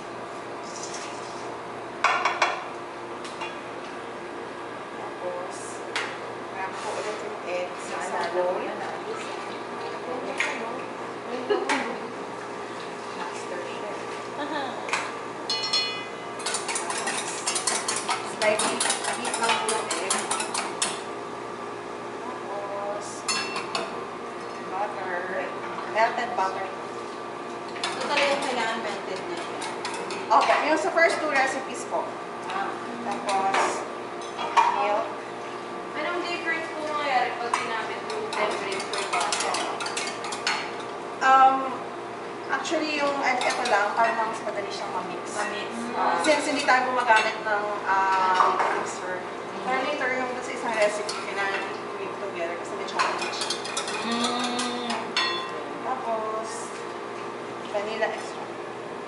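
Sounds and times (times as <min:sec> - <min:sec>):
whisk clinking in metal bowl: 0:15.5 - 0:20.9, 0:38.3 - 0:40.6.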